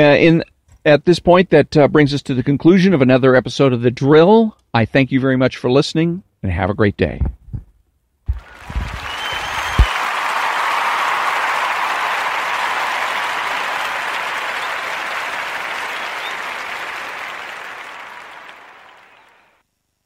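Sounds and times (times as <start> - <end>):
crowd applause: 8.3 - 19.6.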